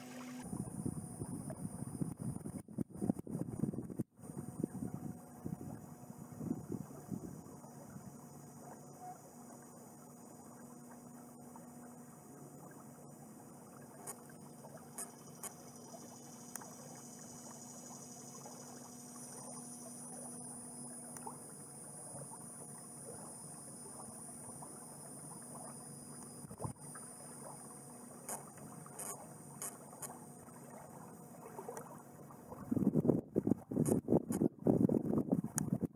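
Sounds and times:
water lapping: 0:00.0 - 0:00.7, 0:06.3 - 0:34.4
steady high buzz: 0:00.0 - 0:02.6, 0:04.2 - 0:33.1.

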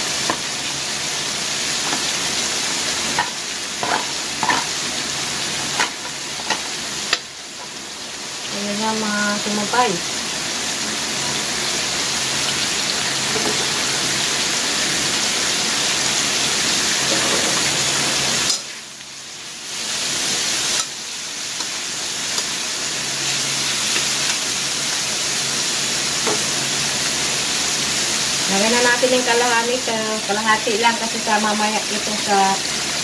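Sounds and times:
vegetables sizzling in a wok: 0:00.0 - 0:33.0
metal spatula stir-frying: 0:01.8 - 0:04.9, 0:17.0 - 0:19.0, 0:19.8 - 0:24.7.

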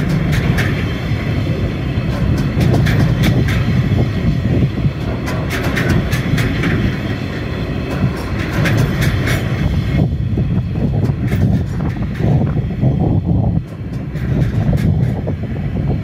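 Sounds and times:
sharp clicks and clanks: 0:00.0 - 0:01.0, 0:02.1 - 0:04.1, 0:04.9 - 0:09.7, 0:10.8 - 0:12.6, 0:13.6 - 0:15.4
train wheels rumbling on rail: 0:00.0 - 0:16.0.

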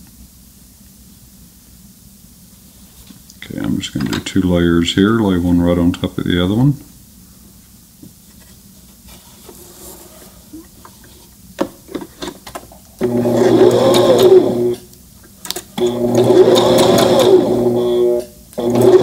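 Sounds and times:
sewing machine stitching: 0:13.0 - 0:14.8, 0:15.8 - 0:19.0.

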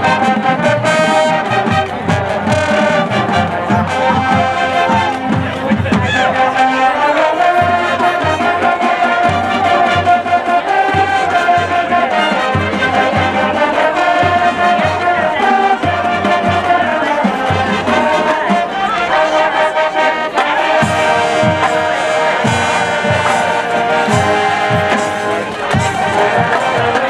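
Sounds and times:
marching band playing: 0:00.0 - 0:27.0.

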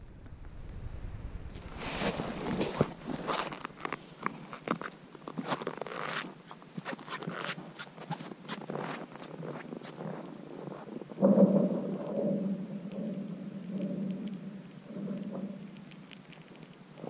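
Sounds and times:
loud ice crack ringing low: 0:00.0 - 0:04.6
lake ice cracking: 0:00.0 - 0:08.2.

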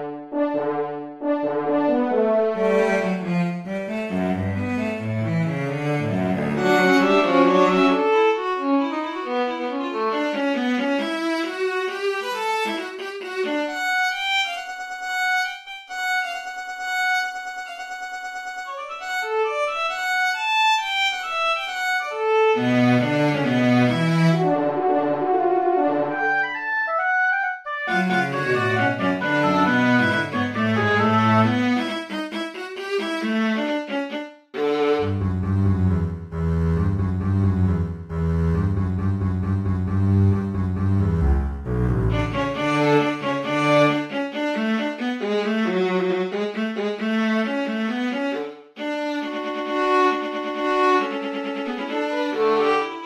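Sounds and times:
orchestral bowed strings: 0:00.0 - 0:26.9, 0:27.7 - 0:53.0
held low cello note: 0:35.0 - 0:43.9.

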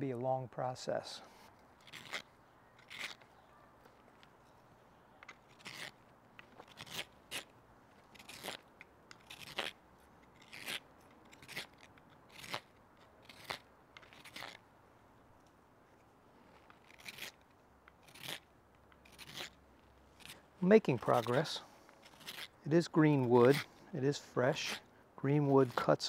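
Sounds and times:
knife cutting wood shavings: 0:01.8 - 0:03.3, 0:05.3 - 0:06.0, 0:06.6 - 0:07.5, 0:08.1 - 0:14.6, 0:16.6 - 0:19.6, 0:20.2 - 0:26.0.

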